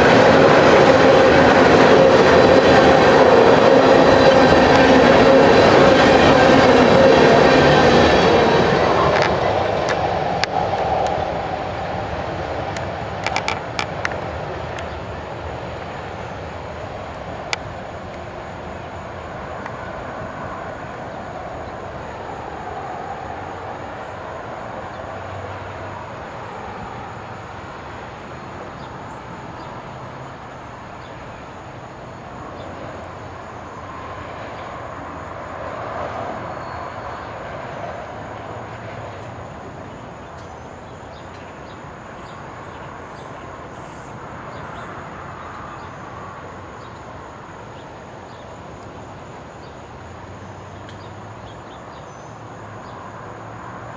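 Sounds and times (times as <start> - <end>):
freight cars rumbling over rails: 0.0 - 53.9
wheels clicking and clattering: 12.6 - 15.0.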